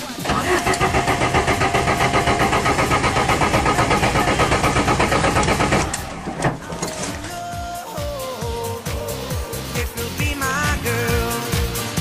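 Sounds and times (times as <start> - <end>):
starter motor cranking engine: 0.1 - 7.4.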